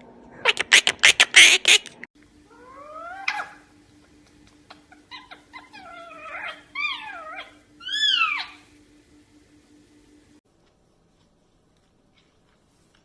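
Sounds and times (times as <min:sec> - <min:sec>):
parakeet calling: 0:00.5 - 0:01.9, 0:02.5 - 0:03.7, 0:04.7 - 0:08.7.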